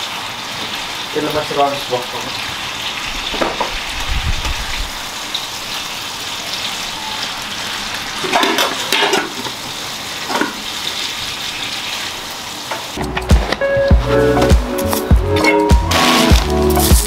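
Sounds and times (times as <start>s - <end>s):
food sizzling in a frying pan: 0.0s - 13.0s
pan or utensil clattering: 8.2s - 9.6s, 10.3s - 10.6s.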